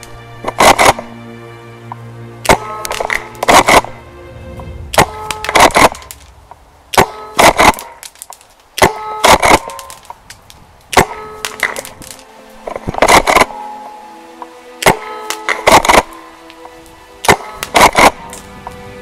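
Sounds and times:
background music: 0:00.0 - 0:10.1, 0:10.9 - 0:19.0
airsoft shotgun shots: 0:00.6 - 0:01.1, 0:02.4 - 0:03.9, 0:05.0 - 0:06.2, 0:06.9 - 0:08.2, 0:08.8 - 0:10.1, 0:10.9 - 0:12.1, 0:13.0 - 0:13.6, 0:14.8 - 0:16.1, 0:17.2 - 0:18.3.

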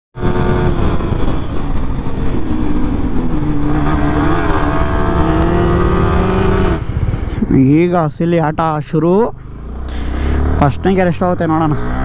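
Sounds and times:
road noise: 0:00.1 - 0:12.0
motorcycle engine running: 0:00.2 - 0:08.7
wind noise: 0:00.2 - 0:08.7.

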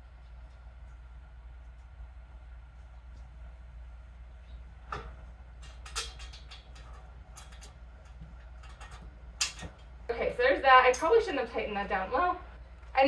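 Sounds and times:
metal parts clicking and clinking: 0:05.6 - 0:09.9.

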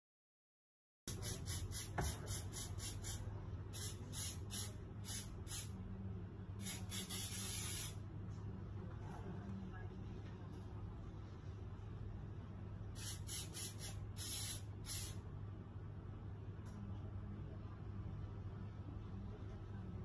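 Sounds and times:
hairspray can hissing: 0:01.1 - 0:05.7, 0:06.6 - 0:08.0, 0:13.0 - 0:15.2
faint low hum: 0:02.2 - 0:20.0.

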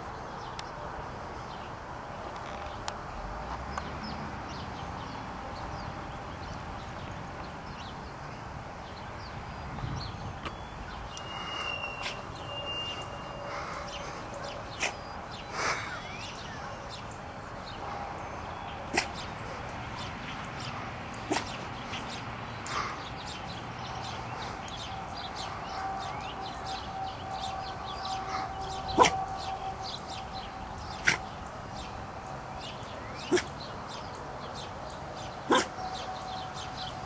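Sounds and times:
small dog soft woofs: 0:29.0 - 0:29.2.

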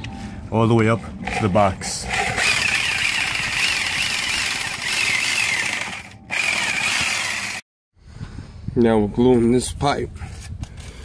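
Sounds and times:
electric saw cutting plastic pipe: 0:02.1 - 0:07.6.

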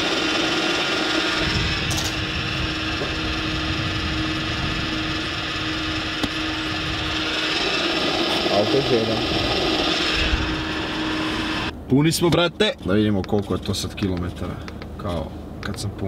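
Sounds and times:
fuel rushing through nozzle: 0:00.0 - 0:11.7
fuel pump humming: 0:00.0 - 0:11.8, 0:12.8 - 0:16.0.

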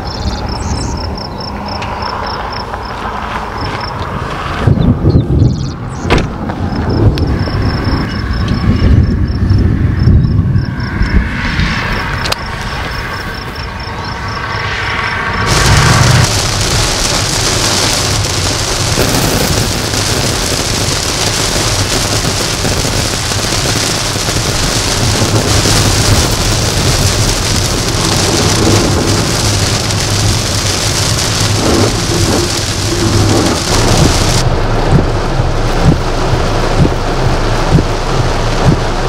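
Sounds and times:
low rumble: 0:00.0 - 0:39.0
heavy rain on car windshield: 0:15.5 - 0:39.0.

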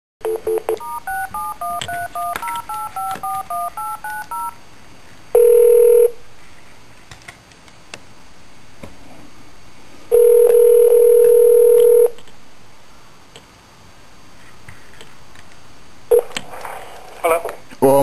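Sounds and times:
faint phone line hiss: 0:00.2 - 0:04.6, 0:05.3 - 0:06.2, 0:10.1 - 0:12.2, 0:16.1 - 0:16.4
telephone dial tone: 0:00.3 - 0:04.6, 0:05.4 - 0:06.1, 0:10.1 - 0:12.2
touch-tone keypad beeps: 0:00.5 - 0:04.6
phone line clicks: 0:00.7 - 0:04.5
ringback tone: 0:00.8 - 0:04.6.

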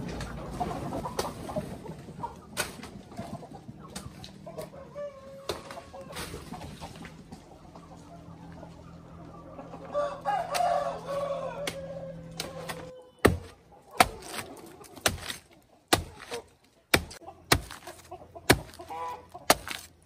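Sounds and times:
chickens clucking: 0:00.0 - 0:20.0
rooster crowing: 0:04.6 - 0:06.1, 0:09.8 - 0:13.2
machete chopping plant trunk: 0:11.6 - 0:20.0.

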